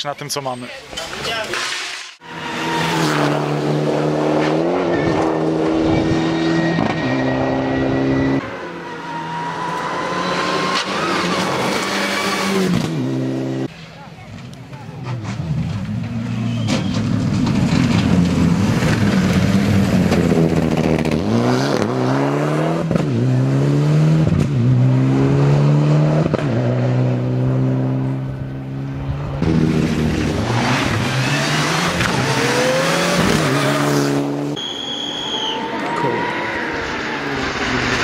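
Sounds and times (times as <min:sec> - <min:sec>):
car engine accelerating hard: 0:02.4 - 0:08.5, 0:15.2 - 0:34.6.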